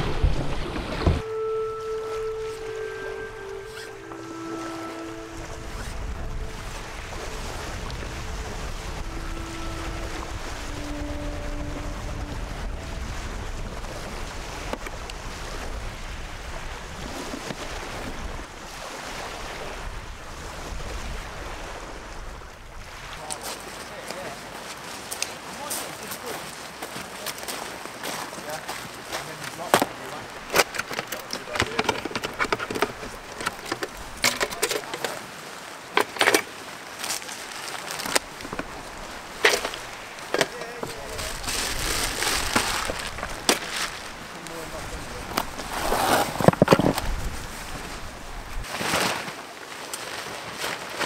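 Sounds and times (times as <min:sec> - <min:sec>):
wind buffeting microphone: 0:00.0 - 0:01.3, 0:01.9 - 0:23.2, 0:30.2 - 0:34.3, 0:38.0 - 0:48.7
rushing outdoor background: 0:00.0 - 0:48.7
nylon bag rustling: 0:40.9 - 0:44.2, 0:45.4 - 0:47.4.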